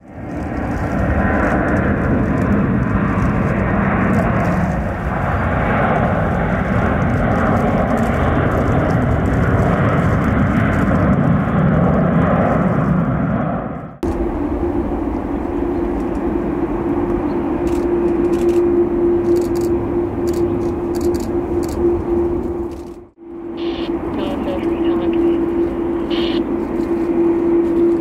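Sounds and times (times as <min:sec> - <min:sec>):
jet engines at high power: 0:00.0 - 0:28.0.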